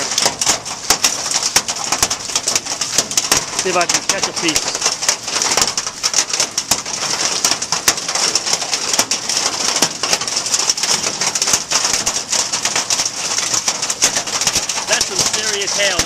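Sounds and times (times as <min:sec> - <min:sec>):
heavy hail clattering: 0:00.0 - 0:16.0.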